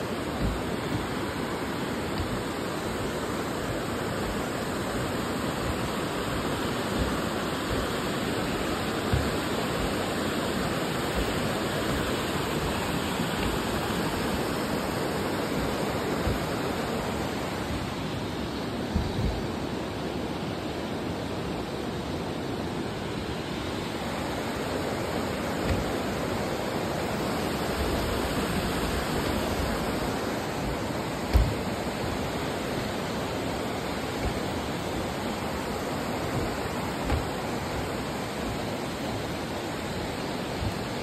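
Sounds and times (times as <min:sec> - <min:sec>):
low bumps: 0:00.0 - 0:19.7
river water rushing over rocks: 0:00.0 - 0:41.0.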